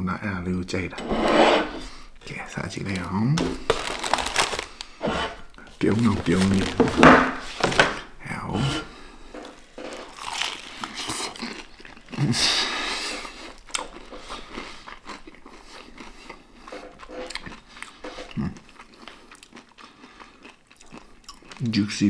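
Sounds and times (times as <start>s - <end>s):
chewing with crackles: 9.2s - 22.0s.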